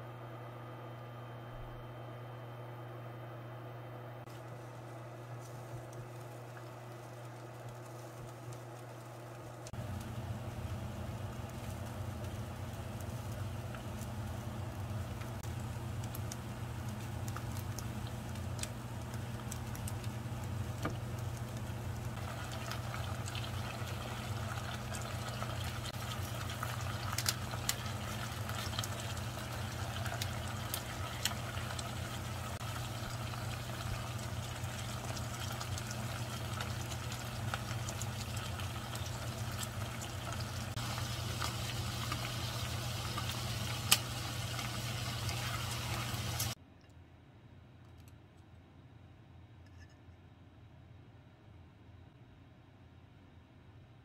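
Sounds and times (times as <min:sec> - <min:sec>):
garlic sizzling in oil: 0:04.3 - 0:46.6.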